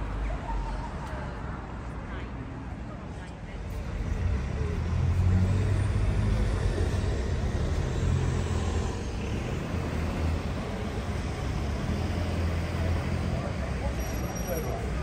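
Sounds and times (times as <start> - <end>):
road noise: 0.0 - 15.0
vehicle engine humming: 3.4 - 15.0.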